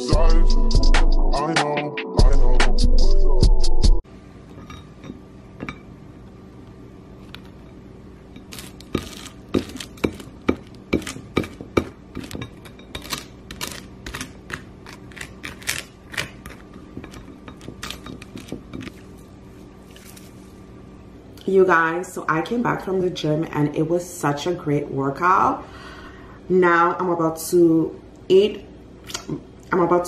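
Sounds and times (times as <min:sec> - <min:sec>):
fork scraping and tapping on toast: 0:08.4 - 0:19.0.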